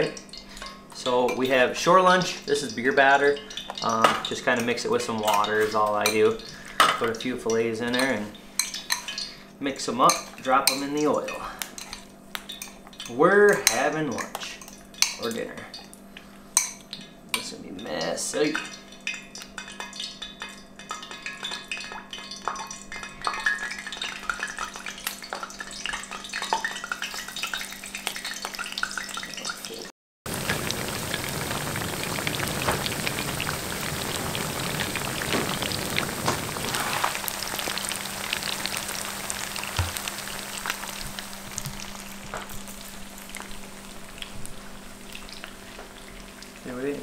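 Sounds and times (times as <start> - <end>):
fish deep-frying in oil: 0.0 - 9.5, 10.1 - 47.0.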